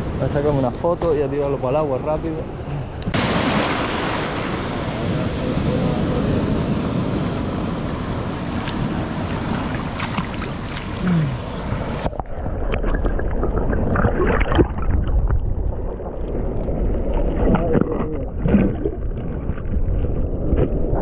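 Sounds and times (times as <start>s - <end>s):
surf washing over boulders: 3.0s - 12.2s
underwater churning water: 3.1s - 21.0s.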